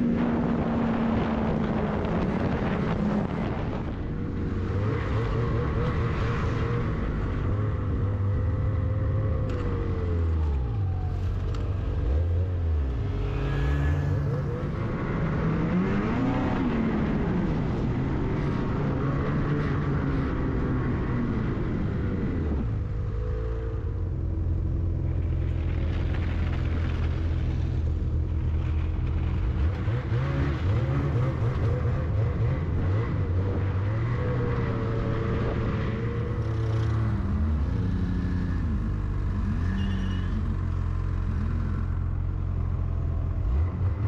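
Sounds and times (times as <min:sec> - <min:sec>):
snowmobile passing by: 0:13.1 - 0:16.6.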